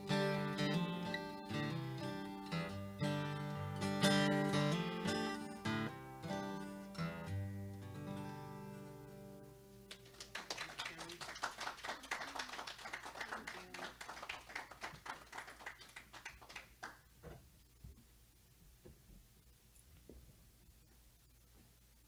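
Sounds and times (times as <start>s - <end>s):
acoustic guitar chord ringing: 0.0s - 9.9s
audience clapping: 9.9s - 17.2s.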